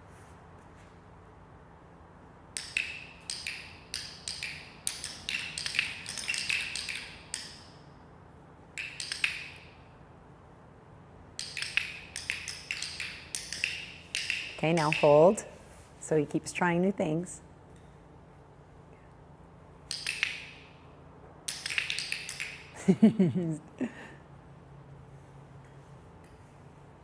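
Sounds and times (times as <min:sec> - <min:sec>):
dog-training clickers clicking: 0:02.6 - 0:07.8, 0:08.8 - 0:09.8, 0:11.4 - 0:15.4, 0:19.9 - 0:20.8, 0:21.4 - 0:22.8.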